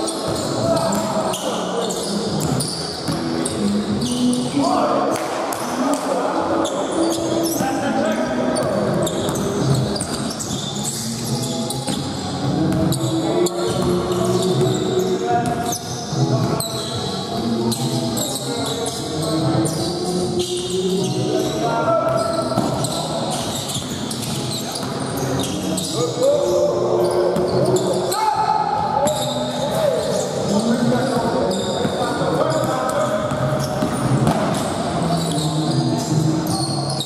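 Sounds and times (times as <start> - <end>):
players' voices: 0.0 - 37.0
basketball bouncing on court: 31.2 - 34.7.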